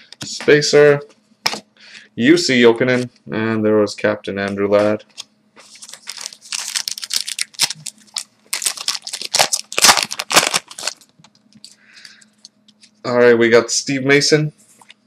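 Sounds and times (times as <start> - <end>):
foil wrapper crinkling: 5.6 - 11.8.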